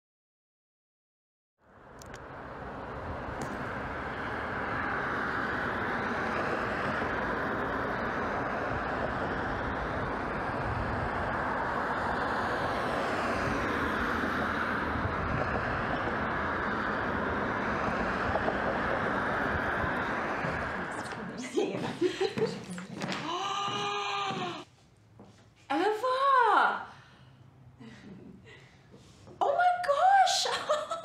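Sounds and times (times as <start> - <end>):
cars passing: 1.7 - 24.7.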